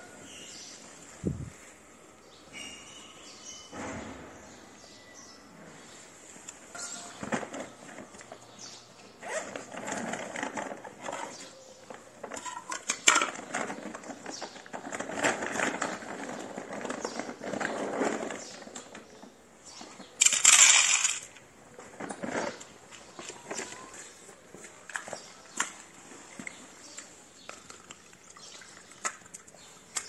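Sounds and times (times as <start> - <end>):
handling rustling and clicks: 9.2 - 30.0.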